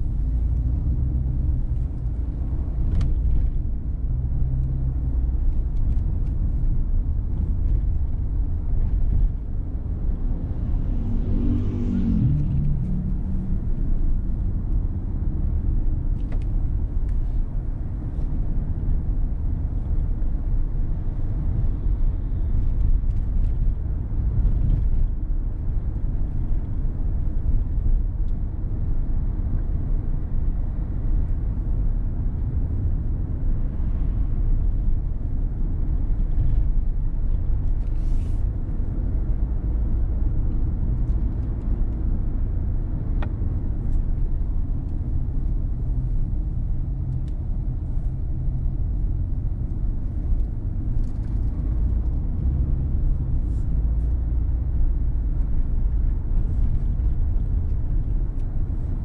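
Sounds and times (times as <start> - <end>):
road and wind noise: 0.0 - 59.0.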